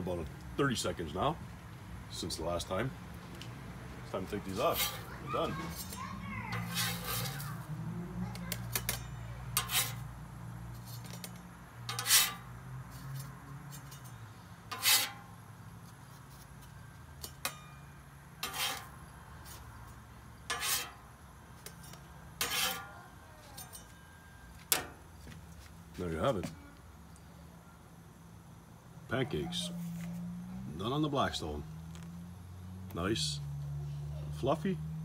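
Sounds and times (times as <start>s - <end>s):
metal spatula scraping griddle: 4.5s - 7.8s, 8.4s - 25.0s.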